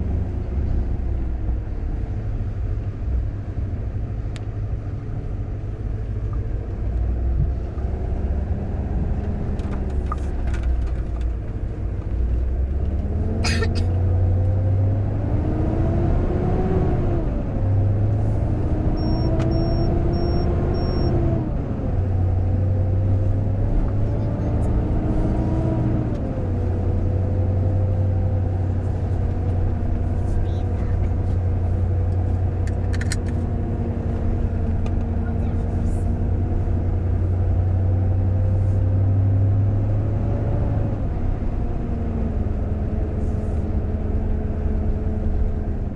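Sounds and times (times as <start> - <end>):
vehicle engine revving: 11.4 - 45.9
short high beeps: 19.0 - 21.2.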